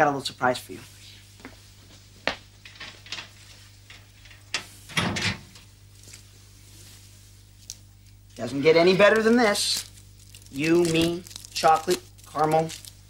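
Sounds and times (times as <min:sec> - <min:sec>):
faint steady hum: 0:00.0 - 0:13.0
steel locker door clunk: 0:04.6 - 0:05.6.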